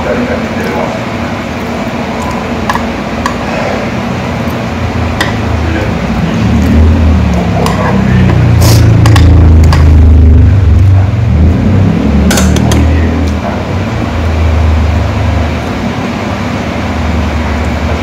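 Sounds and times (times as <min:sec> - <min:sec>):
low rumble: 0:04.8 - 0:15.5.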